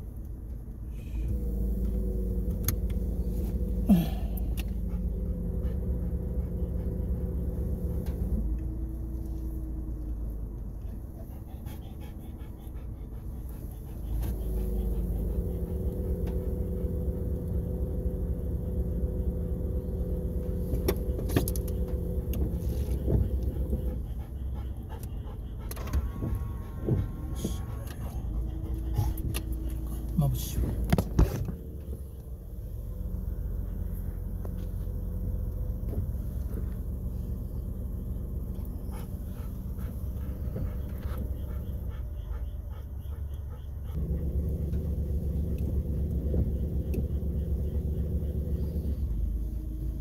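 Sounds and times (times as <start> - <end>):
car engine hum: 0.0 - 50.0
road rumble: 0.0 - 50.0
dog panting: 4.4 - 9.3, 10.0 - 17.0, 21.8 - 32.4, 38.4 - 44.8.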